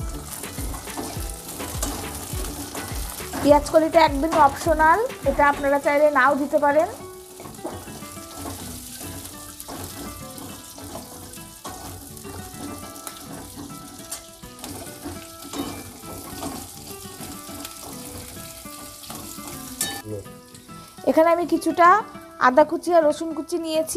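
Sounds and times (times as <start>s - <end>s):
spatula stirring: 0.0s - 5.4s, 7.0s - 20.8s
background music: 0.0s - 23.9s
vegetables sizzling in a wok: 0.0s - 23.9s.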